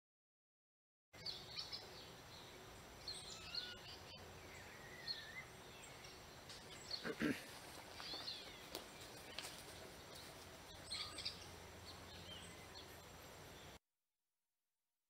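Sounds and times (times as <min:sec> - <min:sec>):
high bird chirps: 0:03.0 - 0:07.2, 0:10.2 - 0:13.8.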